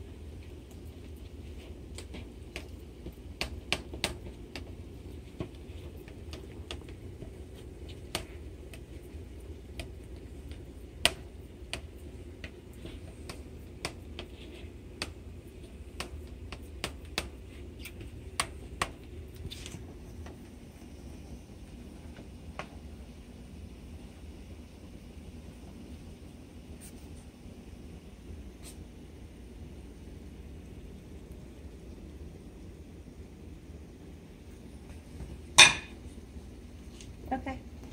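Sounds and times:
steady low hum: 0.0 - 37.9.

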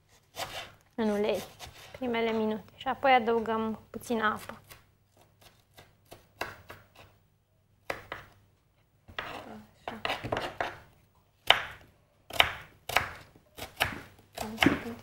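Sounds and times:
knife chopping on cutting board: 5.4 - 7.1, 9.1 - 10.8, 11.4 - 15.0.

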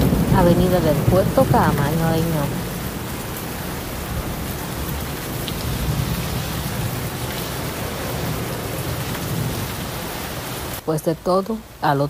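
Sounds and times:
heavy rain on car windshield: 0.0 - 10.8.

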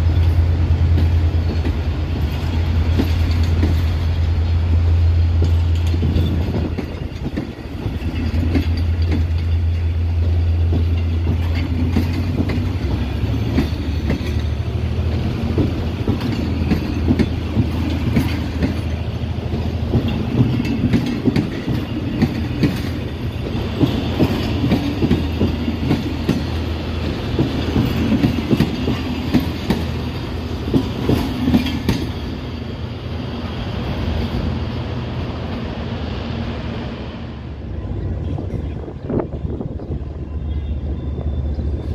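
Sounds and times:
train wheels clacking over rail joints: 0.0 - 32.6
train rumble: 0.0 - 41.9.

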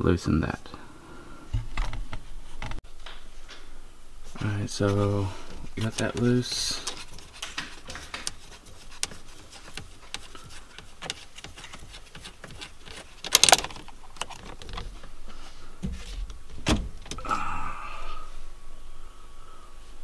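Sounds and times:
small metallic clicks and rattles: 6.8 - 14.9.

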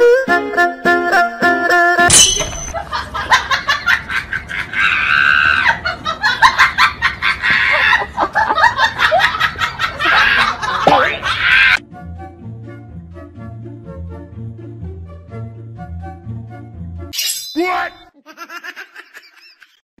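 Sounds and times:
people laughing: 2.8 - 11.8, 18.2 - 19.8.

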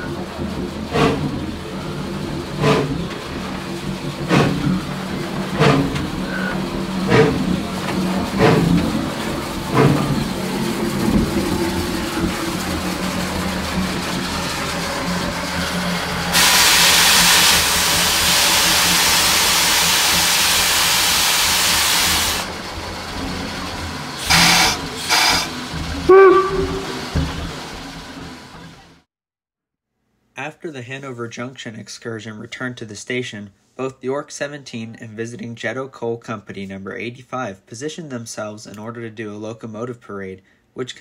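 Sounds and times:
steam venting hiss: 16.2 - 22.5, 24.2 - 25.7.

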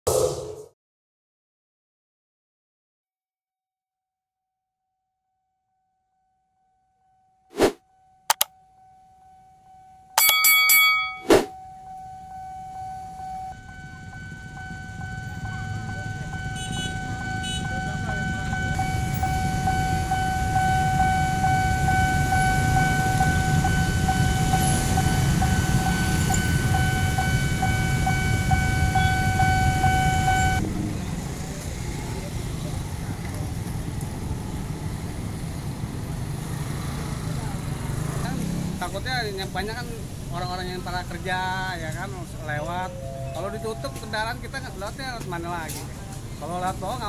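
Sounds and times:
crossing signal high tone: 8.3 - 30.6, 42.4 - 44.5
short loud chime: 10.2 - 11.3.

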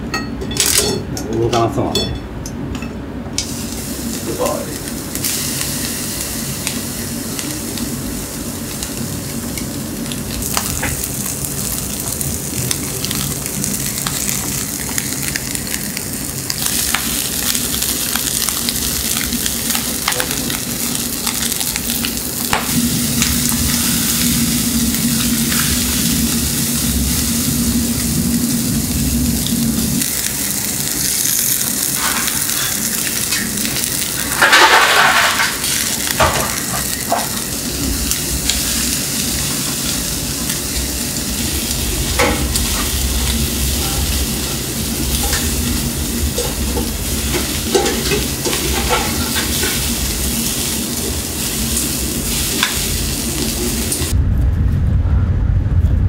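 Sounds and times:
chicken sizzling on grill: 3.4 - 54.2
fat popping and crackling: 9.6 - 23.7.

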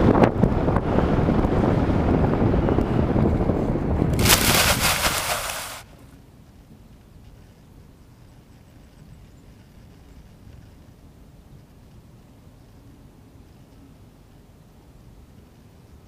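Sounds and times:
wind rushing over microphone: 0.0 - 6.0
plane sliding into long grass: 4.1 - 5.9.

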